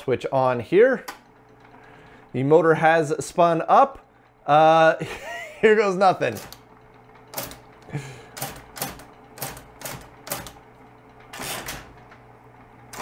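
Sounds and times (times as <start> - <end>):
typewriter motor humming: 0.5 - 13.0
typewriter key clacks: 7.3 - 7.6, 8.4 - 10.6.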